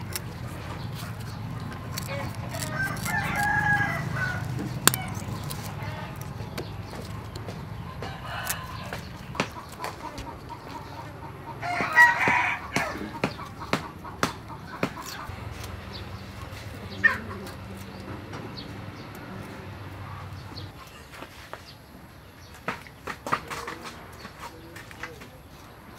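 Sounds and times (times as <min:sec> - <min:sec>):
scissors snipping fish: 0:00.0 - 0:09.9, 0:14.3 - 0:15.8
rooster crowing: 0:02.1 - 0:05.2, 0:07.9 - 0:09.1, 0:11.6 - 0:13.2.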